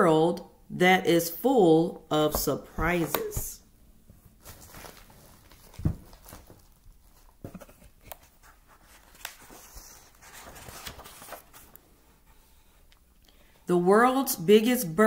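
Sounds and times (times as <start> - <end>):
page turning rustle: 4.4 - 11.9
book thump: 5.7 - 6.5.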